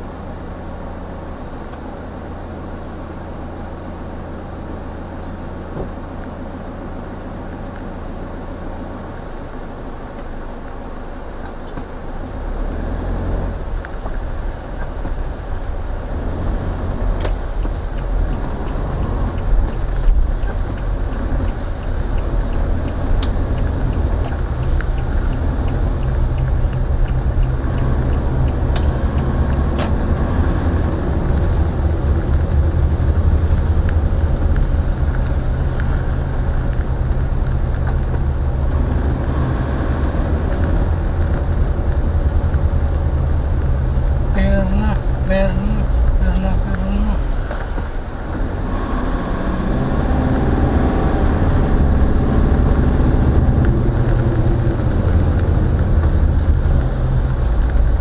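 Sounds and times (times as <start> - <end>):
car engine and tyre rumble: 0.0 - 58.0
faint sharp ticks: 17.1 - 32.6.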